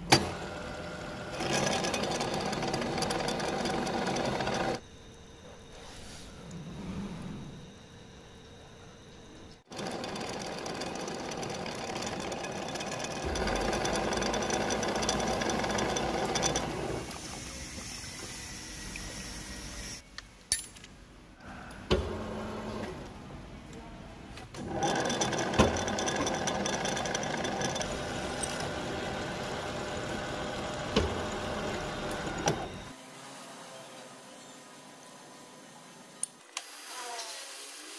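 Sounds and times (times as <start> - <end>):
milling machine cutting steel: 9.7 - 17.2, 24.6 - 32.9.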